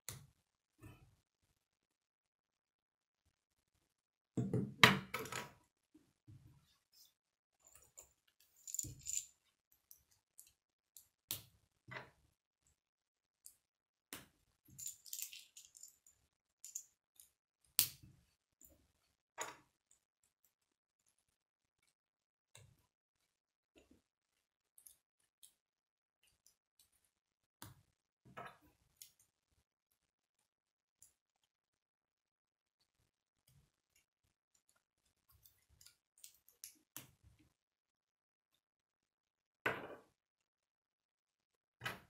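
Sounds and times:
plastic pieces clicking and rattling: 0:08.5 - 0:09.3, 0:14.8 - 0:16.8.

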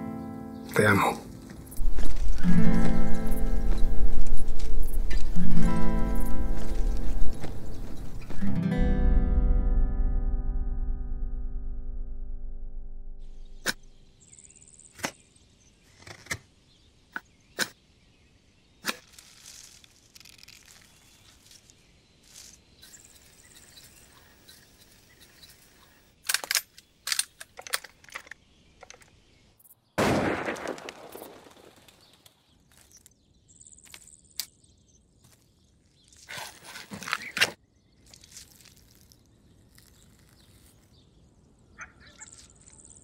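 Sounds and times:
high bird chirps: 0:37.2 - 0:43.0.

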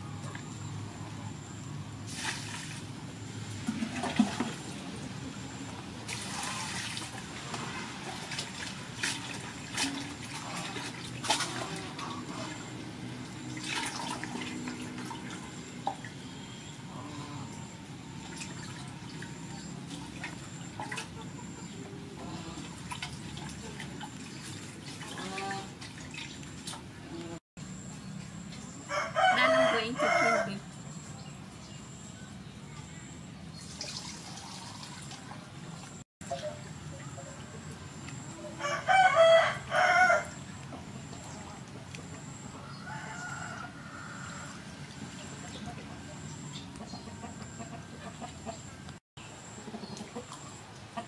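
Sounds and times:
water splashing in metal bowl: 0:06.1 - 0:16.2, 0:33.6 - 0:36.8
rooster crowing: 0:28.8 - 0:30.6, 0:38.5 - 0:40.4, 0:42.6 - 0:44.6.

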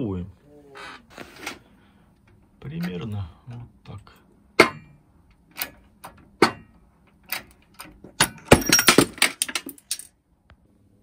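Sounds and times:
metal parts clinking together: 0:05.5 - 0:10.1.

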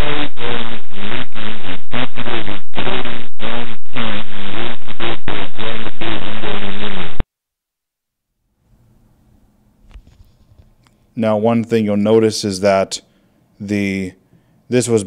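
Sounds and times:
distorted buzzy lo-fi audio: 0:00.0 - 0:07.3.

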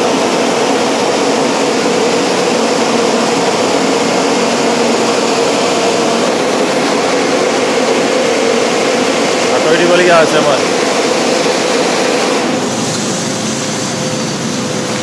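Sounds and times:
constant hum: 0:00.0 - 0:15.0
drying blowers rushing air: 0:00.0 - 0:15.0.

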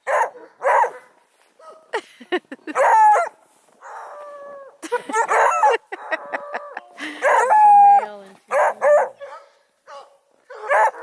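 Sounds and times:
puppies barking and baying: 0:02.7 - 0:09.5, 0:10.5 - 0:11.0.

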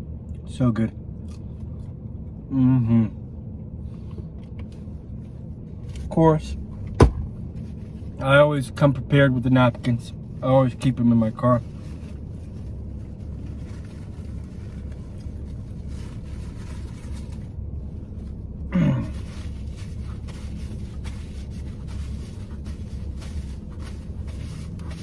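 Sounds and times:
low hum in car cabin: 0:00.0 - 0:25.0
paper napkins rustling: 0:11.3 - 0:25.0.

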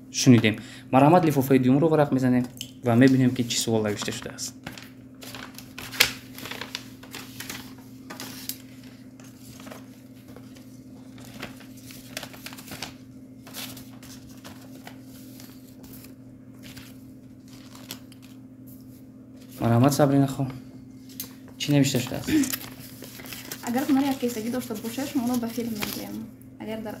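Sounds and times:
steady low hum: 0:00.0 - 0:27.0
paper rustling and crinkling: 0:03.0 - 0:20.0, 0:22.0 - 0:26.3.

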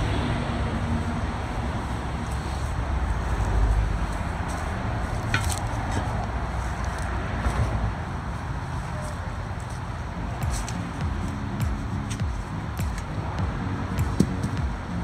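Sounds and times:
tire iron clicks: 0:04.5 - 0:06.3.

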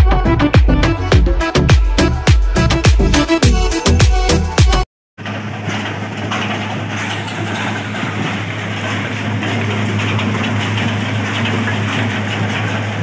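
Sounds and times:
crushed ice sliding down metal chute: 0:05.2 - 0:13.0
machinery humming: 0:05.2 - 0:13.0.

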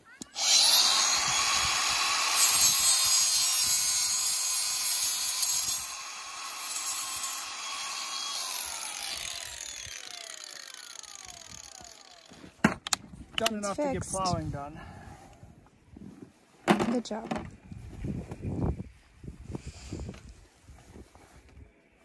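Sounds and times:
angle grinder cutting steel cable: 0:00.2 - 0:12.4.

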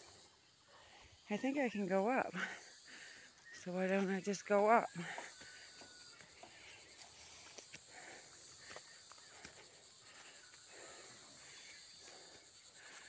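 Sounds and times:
footsteps through grass and leaves: 0:03.4 - 0:13.0.

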